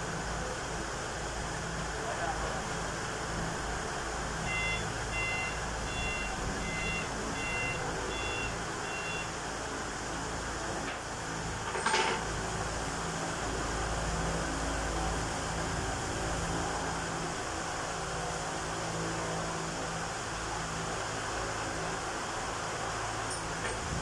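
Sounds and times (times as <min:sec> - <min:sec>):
forklift engine hum: 0:00.0 - 0:24.0
backup alarm beeps: 0:04.4 - 0:09.3.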